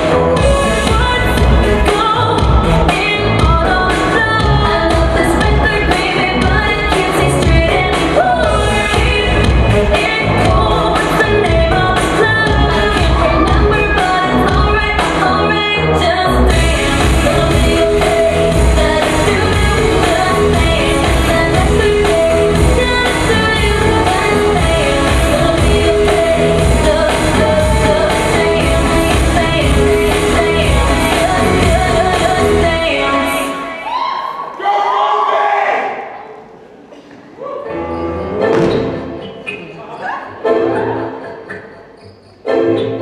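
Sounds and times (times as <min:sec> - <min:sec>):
steady pop beat: 0:00.0 - 0:15.4, 0:16.5 - 0:32.9
person singing: 0:00.0 - 0:34.4.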